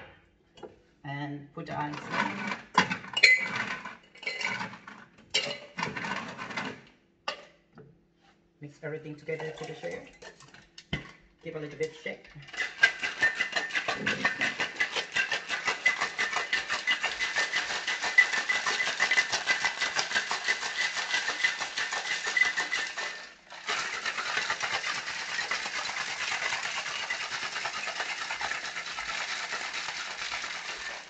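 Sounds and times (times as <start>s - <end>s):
ice rattling in cocktail shaker: 1.9s - 2.6s, 9.2s - 10.6s, 11.6s - 31.0s.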